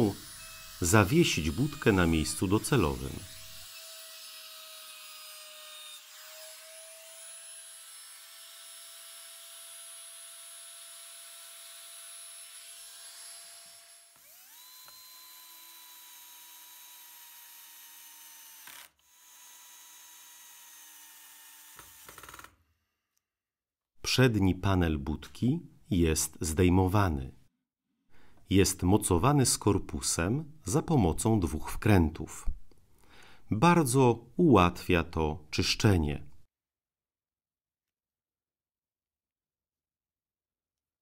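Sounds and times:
electric router whining: 0.0 - 4.1, 13.6 - 22.5.

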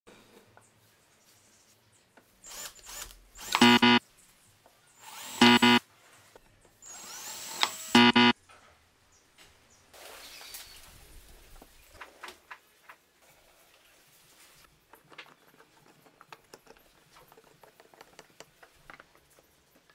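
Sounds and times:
power drill whirring: 2.4 - 4.0, 5.0 - 5.8, 6.8 - 8.3.

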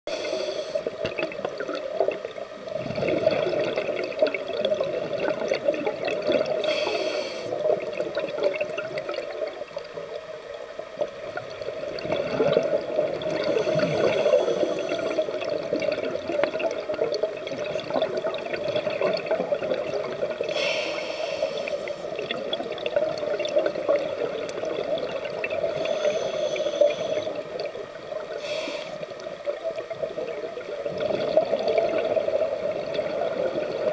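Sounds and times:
regulator inhalation hiss: 0.1 - 1.0, 6.6 - 7.6, 13.5 - 15.3, 20.5 - 22.2, 25.8 - 27.4, 28.3 - 29.1
exhaled bubbles rushing: 0.8 - 6.6, 11.3 - 20.6, 29.1 - 33.9.

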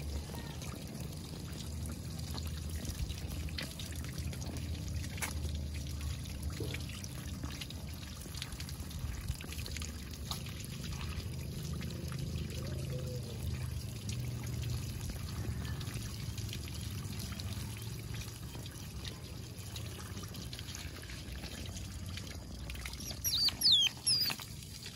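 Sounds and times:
water from hose splashing: 0.0 - 24.9
otter squeaking: 23.0 - 24.4.

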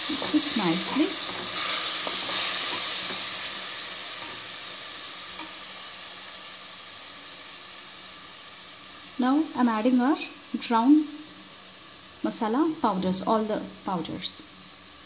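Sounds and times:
spatula scraping pan: 0.0 - 4.5
vegetables sizzling in a pan: 0.0 - 15.0.

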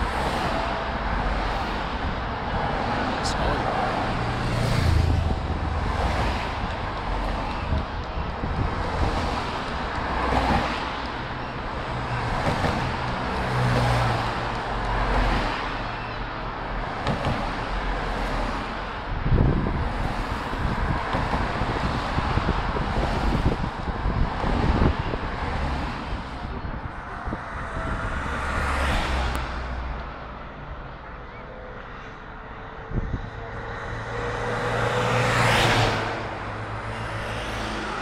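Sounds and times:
cars passing by: 0.0 - 38.0.

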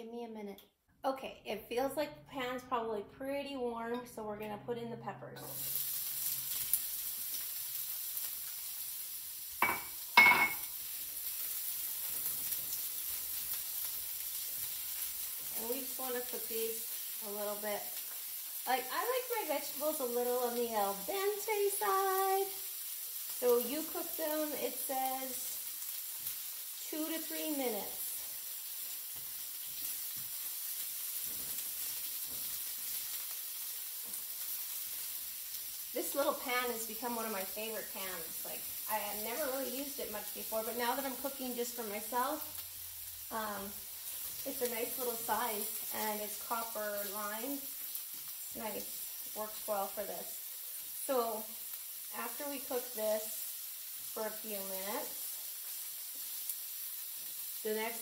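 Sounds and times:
peppers sizzling in frying pan: 3.2 - 58.0
spatula stirring in pan: 28.4 - 35.8.

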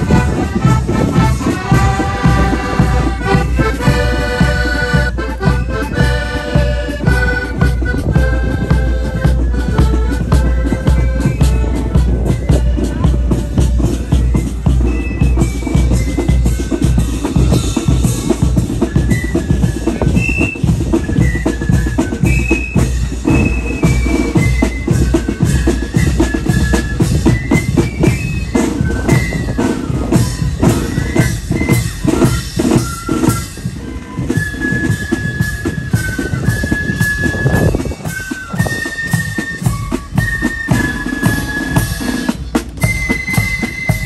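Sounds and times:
bass drum beat: 0.0 - 18.8
flutes playing a tune: 0.0 - 44.0
rapid snare drumming: 0.0 - 44.0.

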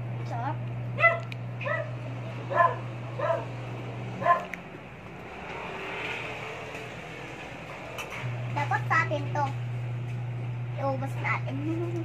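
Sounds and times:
small dog yipping: 1.0 - 3.5, 4.2 - 4.5.

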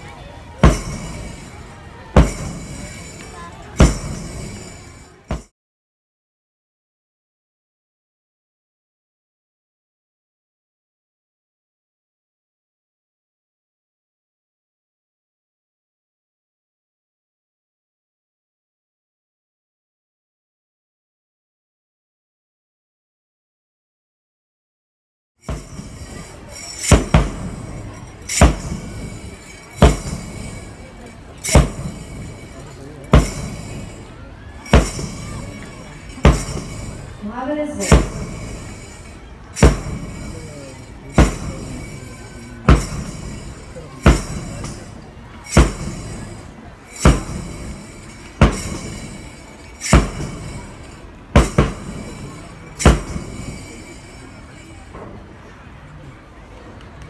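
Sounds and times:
outdoor background noise: 0.0 - 5.5, 25.4 - 57.0
booming drum beats: 0.6 - 5.5, 25.4 - 54.2
loud sharp thumps: 26.8 - 29.1.

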